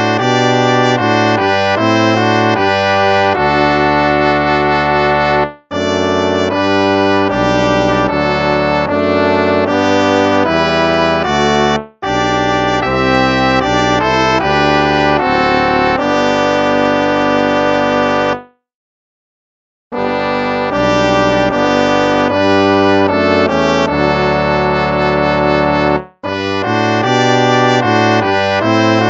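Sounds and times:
instrumental hymn music: 0.0 - 18.6, 20.0 - 29.0.

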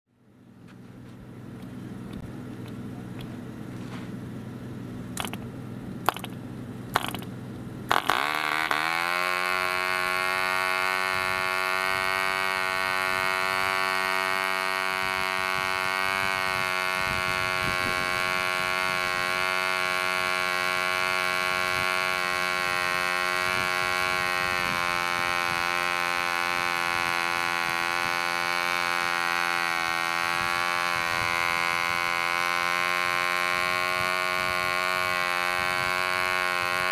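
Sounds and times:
model engine running: 1.3 - 36.9
sharp clicks: 5.2 - 6.4, 7.0 - 7.3.

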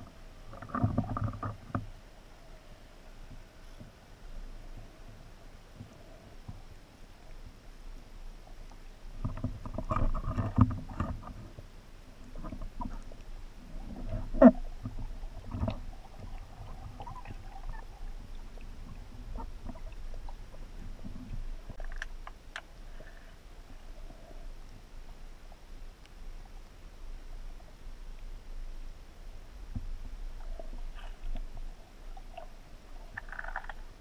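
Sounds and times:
underwater rumble: 0.0 - 34.0
underwater knocks and clicks: 0.5 - 1.9, 9.2 - 11.6, 13.8 - 23.3, 33.1 - 33.9.

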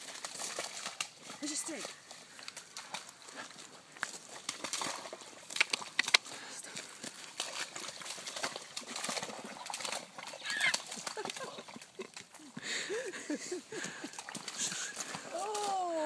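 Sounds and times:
dog splashing through mud: 0.0 - 16.0
sharp slaps in mud: 4.4 - 6.3.

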